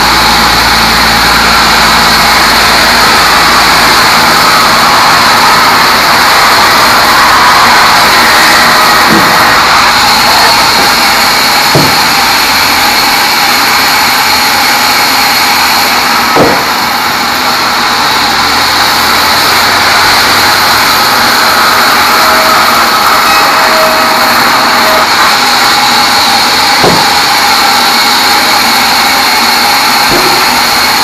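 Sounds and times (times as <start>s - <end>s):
band saw cutting logs: 0.0s - 31.0s
wood knock: 11.7s - 12.0s, 16.4s - 16.7s, 26.8s - 27.1s.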